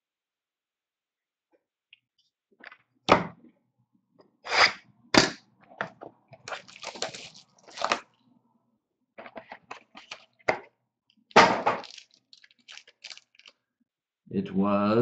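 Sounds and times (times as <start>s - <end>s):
packaging rustling: 6.4s - 8.1s, 9.2s - 10.5s, 11.6s - 13.6s.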